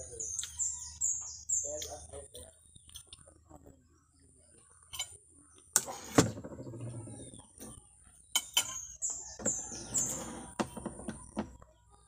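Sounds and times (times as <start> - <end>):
falling bird chirps: 0.0 - 3.1, 4.8 - 12.0.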